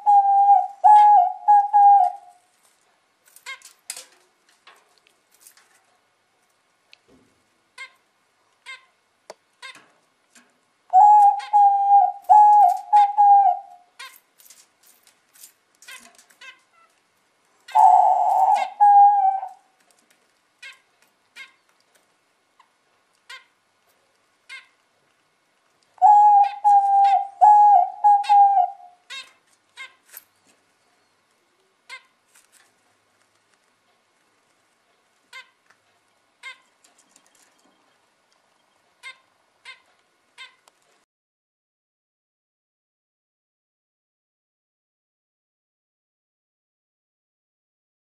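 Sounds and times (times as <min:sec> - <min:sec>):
dove cooing: 0:00.0 - 0:02.4, 0:10.9 - 0:13.9, 0:17.7 - 0:19.7, 0:26.0 - 0:29.2.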